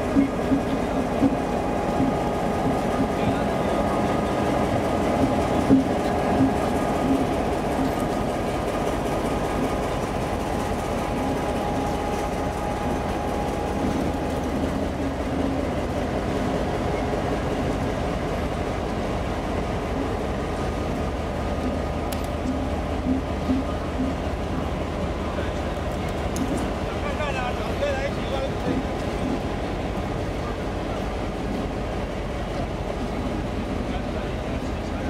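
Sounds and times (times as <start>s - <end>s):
wheels knocking on rails: 0.0s - 16.1s
locomotive engine running: 0.0s - 35.0s.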